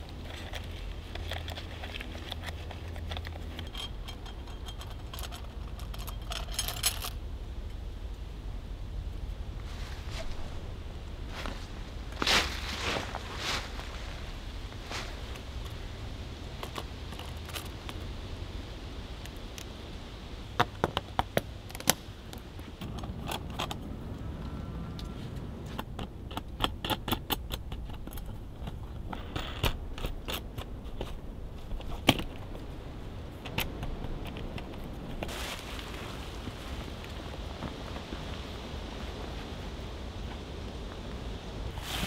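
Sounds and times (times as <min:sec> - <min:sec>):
small metal parts clicking: 0:00.3 - 0:07.2
short rustle: 0:09.6 - 0:15.9, 0:35.2 - 0:38.5, 0:41.7 - 0:42.0.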